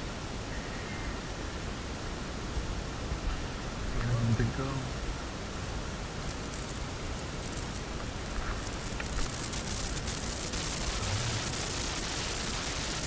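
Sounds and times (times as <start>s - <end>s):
light crackling: 4.0s - 13.0s.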